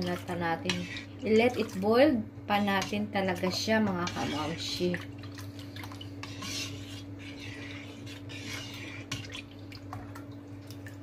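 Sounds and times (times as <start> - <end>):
spoon stirring liquid in a wok: 0.0 - 1.7, 2.5 - 10.4
steady low hum: 0.0 - 11.0
liquid pouring and dripping: 9.5 - 11.0.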